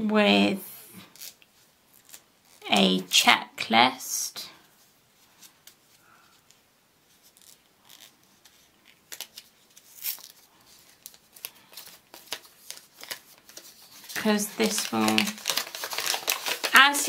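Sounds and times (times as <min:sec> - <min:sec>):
paper leaflet rustling: 0:05.2 - 0:17.0
light paper clicks: 0:10.9 - 0:16.8.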